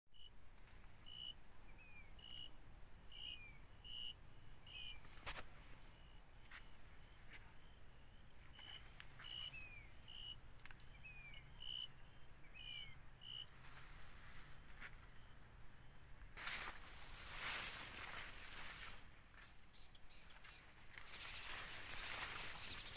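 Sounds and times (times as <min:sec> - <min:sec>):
night insects trilling: 0:00.1 - 0:22.9
rustling: 0:16.4 - 0:19.1.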